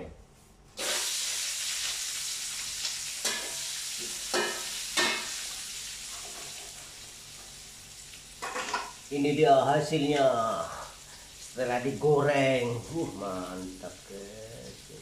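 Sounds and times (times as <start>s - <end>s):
food sizzling in hot oil: 0.8s - 15.0s.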